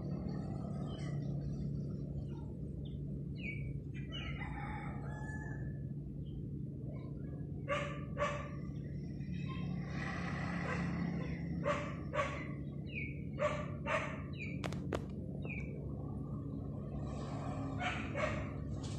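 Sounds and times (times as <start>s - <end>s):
steady low hum: 0.0s - 18.9s
animal or bird calls: 0.4s - 5.9s, 6.9s - 14.8s.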